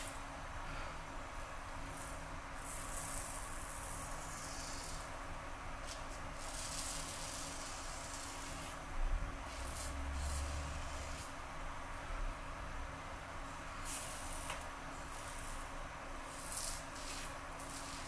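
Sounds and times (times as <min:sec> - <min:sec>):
razor scraping stubble: 0:05.8 - 0:08.8, 0:09.5 - 0:11.3, 0:16.2 - 0:18.0.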